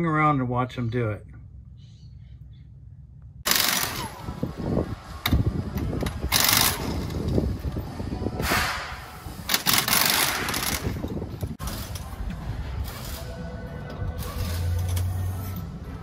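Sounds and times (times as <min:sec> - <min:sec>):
pneumatic impact wrench bursts: 0:03.5 - 0:04.5, 0:06.0 - 0:07.4, 0:08.4 - 0:11.2.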